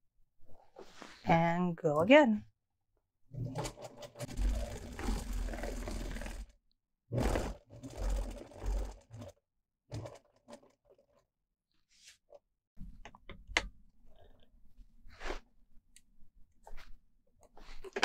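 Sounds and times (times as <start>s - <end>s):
sewing machine stitching: 3.3s - 6.5s, 7.1s - 11.2s.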